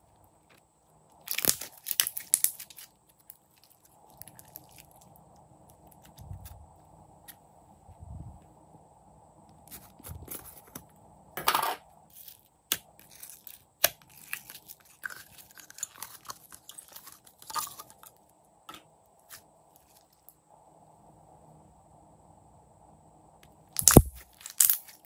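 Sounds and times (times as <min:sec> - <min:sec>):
slime crackling and squelching: 0:00.0 - 0:06.6, 0:12.1 - 0:18.2.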